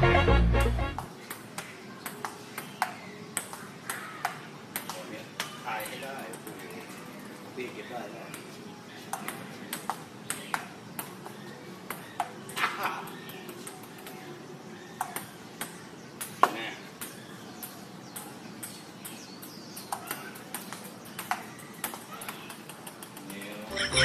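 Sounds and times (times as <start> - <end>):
ping-pong ball clicking: 1.0 - 5.0, 9.1 - 11.2, 15.0 - 23.6.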